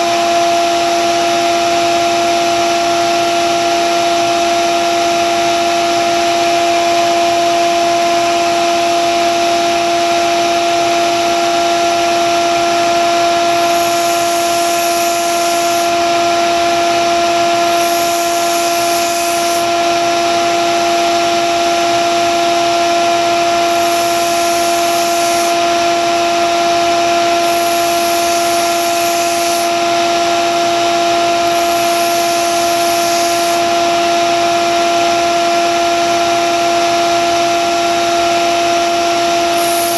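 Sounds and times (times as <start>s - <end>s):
belt sander motor hum: 5.4s - 35.5s, 38.8s - 39.9s
steel grinding on abrasive belt: 13.4s - 16.6s, 17.4s - 19.8s, 23.5s - 25.9s, 26.5s - 33.9s, 39.4s - 39.9s.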